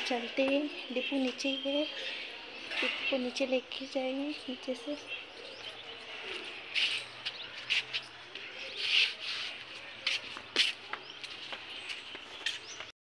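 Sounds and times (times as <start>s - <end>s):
footsteps scuffing and clicking: 6.7s - 12.9s.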